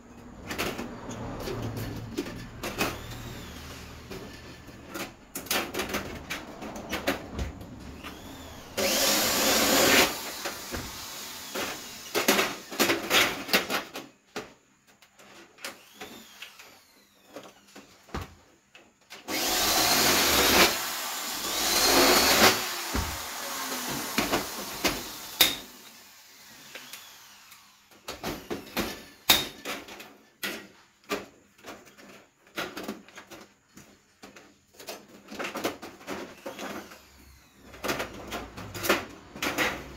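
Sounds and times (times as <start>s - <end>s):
cordless drill whining: 2.8s - 4.2s, 8.0s - 12.9s, 15.7s - 17.7s, 19.2s - 29.3s, 36.3s - 37.9s.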